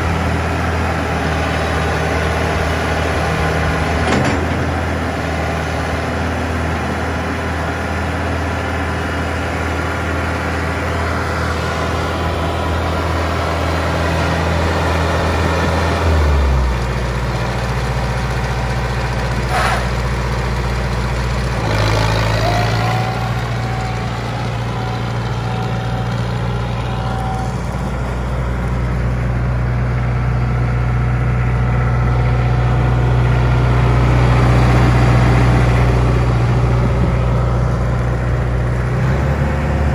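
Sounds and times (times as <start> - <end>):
tractor diesel engine idling: 0.0 - 39.9.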